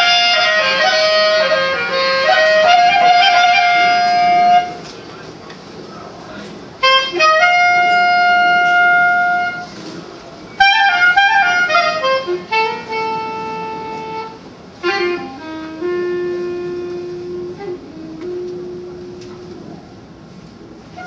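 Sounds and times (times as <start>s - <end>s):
solo clarinet melody: 0.0s - 4.8s, 6.8s - 9.8s, 10.5s - 19.8s.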